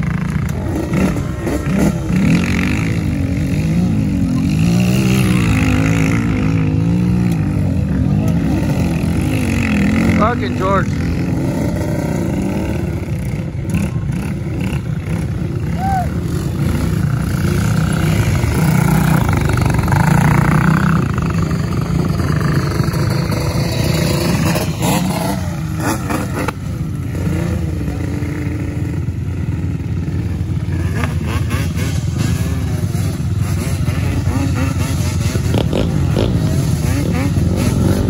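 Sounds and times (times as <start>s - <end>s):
quad engine running: 0.0s - 38.0s.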